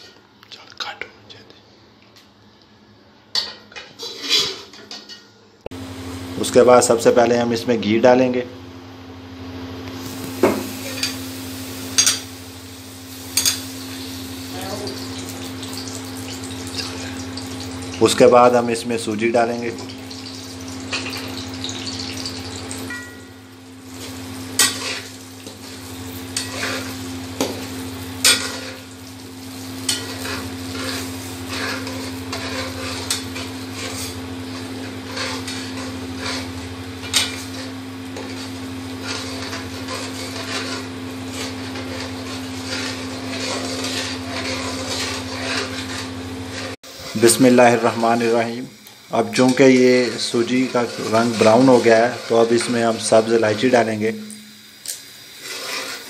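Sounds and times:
metal spoon scraping a pan: 3.4 - 5.3, 10.7 - 11.2, 12.0 - 12.3, 13.2 - 13.8, 23.9 - 29.0, 29.8 - 48.0, 49.3 - 53.7, 55.3 - 56.0
semolina sizzling in ghee: 9.3 - 56.0.

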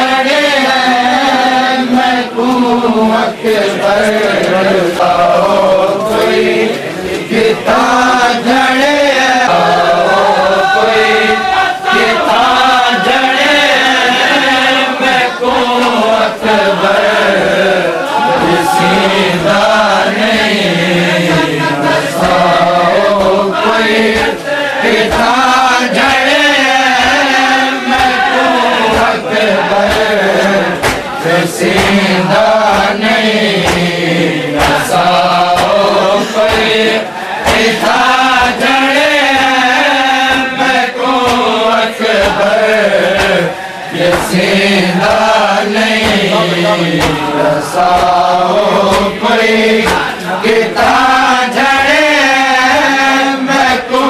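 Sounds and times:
men chanting a lament: 0.0 - 54.0
hands slapping chest: 22.2 - 24.4, 25.0 - 49.2, 49.8 - 52.8.

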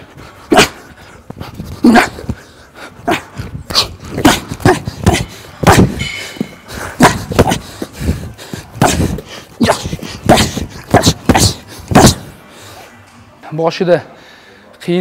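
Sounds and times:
man exhaling and grunting: 1.7 - 12.3.

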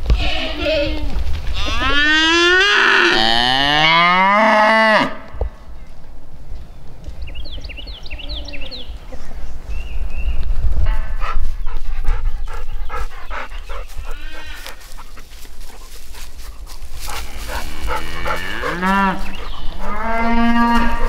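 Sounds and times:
livestock calling loudly: 17.0 - 21.0.

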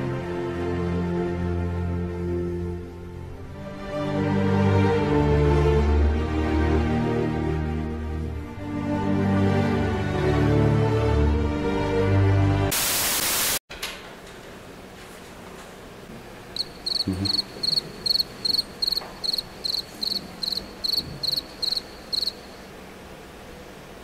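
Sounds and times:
loud static hiss: 12.7 - 13.6, 15.9 - 24.0
cricket chirping: 16.6 - 22.8.

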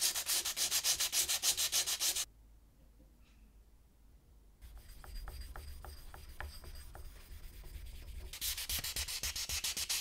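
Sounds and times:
sandpaper rubbing on metal: 0.0 - 2.3, 4.7 - 10.0.

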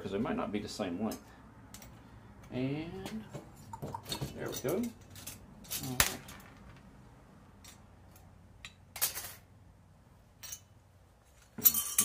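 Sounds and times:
metal parts clinking and rattling: 4.1 - 6.8, 7.6 - 9.5, 10.4 - 12.0.

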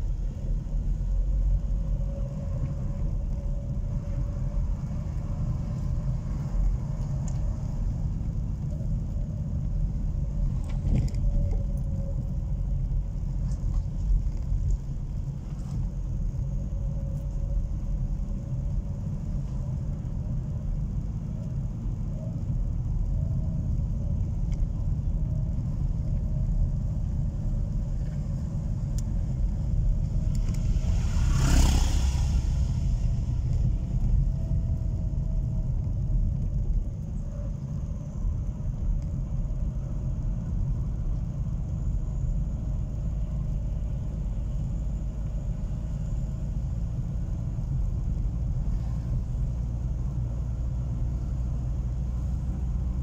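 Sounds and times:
car engine and tyre rumble: 0.0 - 53.0
rushing noise: 29.7 - 34.3.

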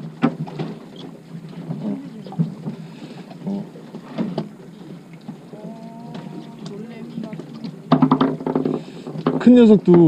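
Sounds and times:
boat engine humming: 0.0 - 10.0
faint voices: 5.5 - 7.8
sharp clicks and knocks: 6.1 - 10.0.

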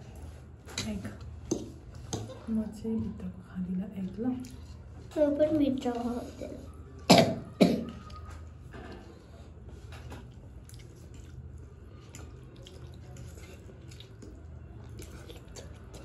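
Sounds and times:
person coughing: 7.1 - 8.0
wet chewing and slurping: 10.1 - 16.0.

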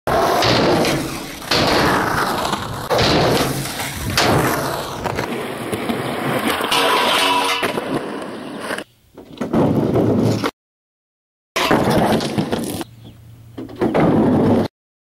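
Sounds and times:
skateboard popping and landing thuds: 0.1 - 10.5, 11.6 - 12.8
skateboard wheels rolling on concrete: 0.1 - 10.5, 11.6 - 14.7.

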